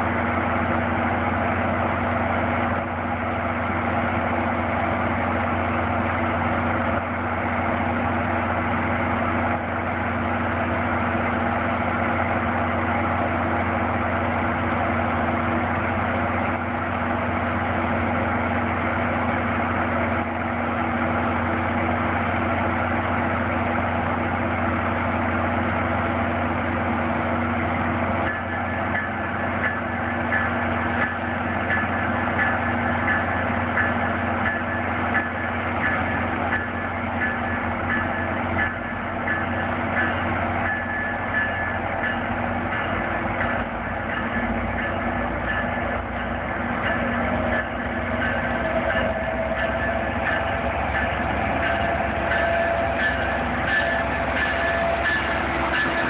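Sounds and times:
diesel locomotive idling: 0.0 - 56.0
high-pitched tone: 46.8 - 56.0.

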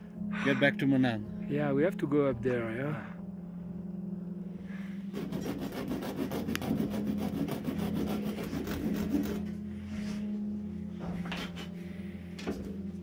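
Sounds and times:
hand saw rasping on shoe sole: 5.1 - 9.6.

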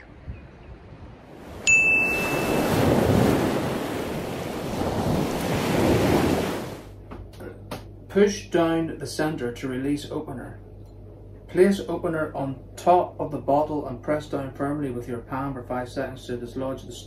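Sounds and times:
ocean surf washing in: 1.0 - 6.9
short bright ding: 1.6 - 2.7.

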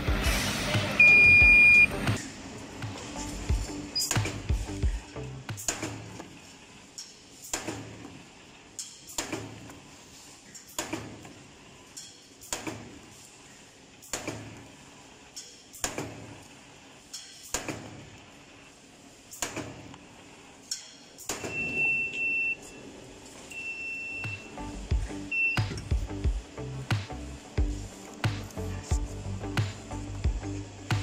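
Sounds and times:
high beep: 1.0 - 1.9, 21.4 - 22.6, 23.5 - 24.5, 25.3 - 25.9.

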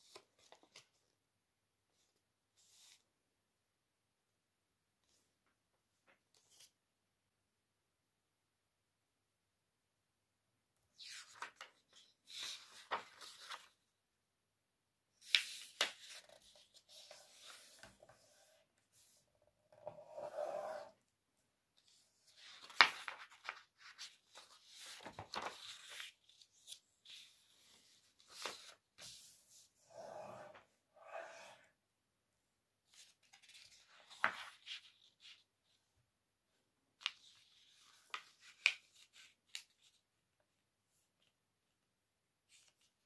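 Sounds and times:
paper rustling and sliding: 11.1 - 13.8, 21.9 - 31.4.

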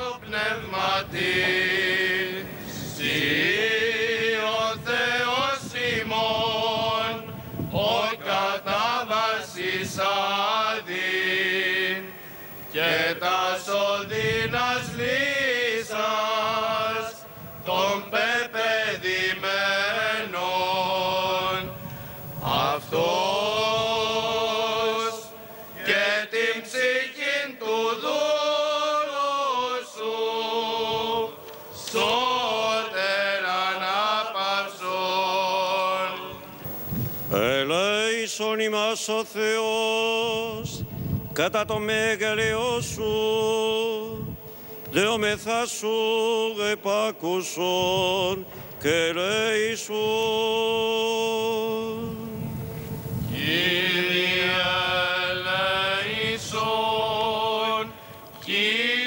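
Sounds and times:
men chanting: 12.7 - 21.7, 22.4 - 36.4, 53.4 - 59.0.

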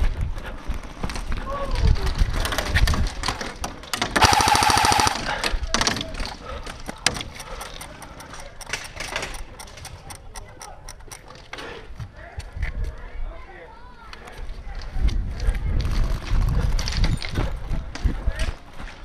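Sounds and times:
airsoft rifle full-auto burst: 4.2 - 5.4.

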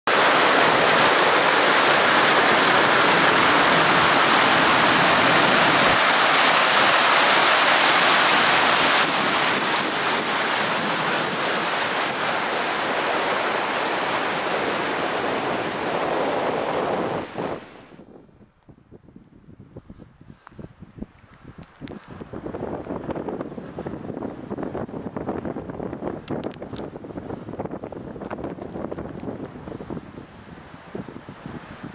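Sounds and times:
loud steady rushing noise: 0.1 - 17.9.

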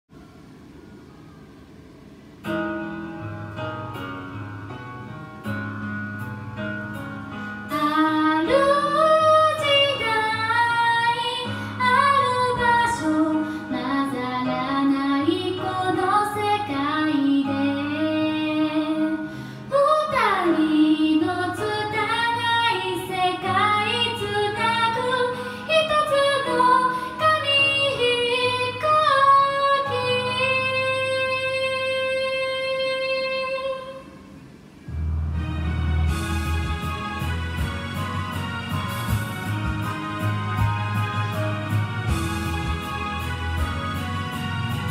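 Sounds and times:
backing track music: 2.2 - 32.0, 33.9 - 44.9
woman singing karaoke: 7.7 - 34.2.

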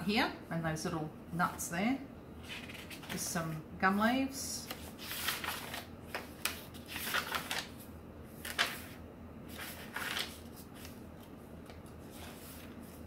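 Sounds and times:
paper pages turning: 2.4 - 3.2, 4.6 - 7.8, 8.4 - 13.0.

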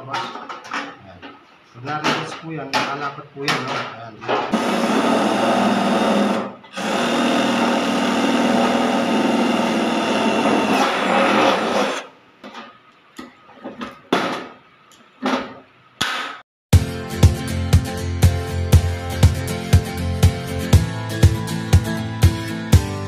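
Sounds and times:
cordless drill boring sheet metal: 4.5 - 12.1.

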